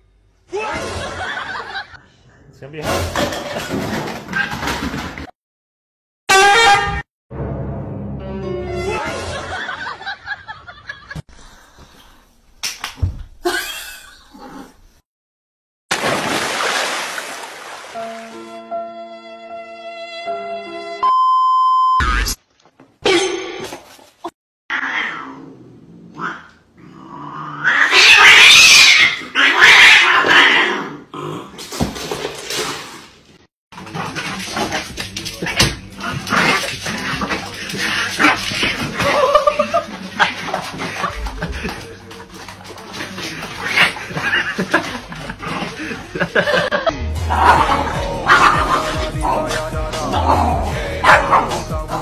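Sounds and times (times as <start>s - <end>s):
person giggling and laughing: 13.4s - 14.2s, 39.0s - 40.0s, 44.1s - 47.0s
cat yowling: 27.6s - 30.6s.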